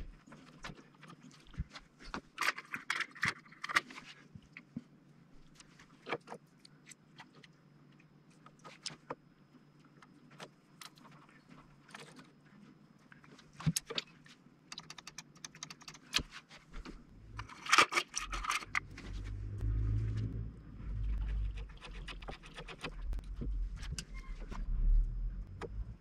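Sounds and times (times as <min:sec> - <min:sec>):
metal parts clicking and rattling: 0:17.3 - 0:19.1
low rumble: 0:18.7 - 0:26.0.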